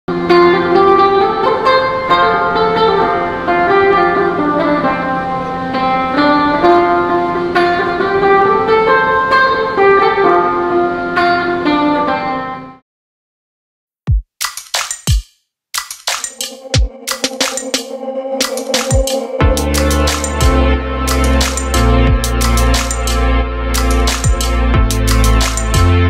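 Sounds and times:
steady low drone: 16.5 - 26.0.

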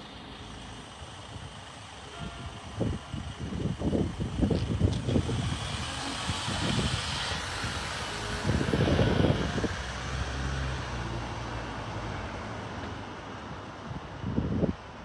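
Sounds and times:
low engine rumble: 0.0 - 11.4
pickup truck driving off: 2.8 - 11.5.

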